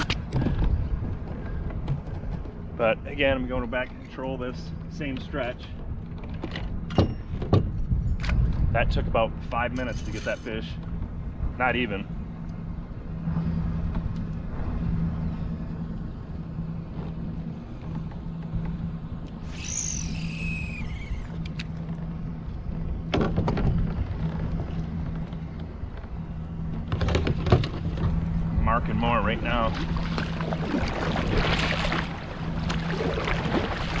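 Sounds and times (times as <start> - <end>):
water and wind rumble: 0.0 - 34.0
kayak drive humming: 10.8 - 34.0
high falling whistle: 19.4 - 21.4.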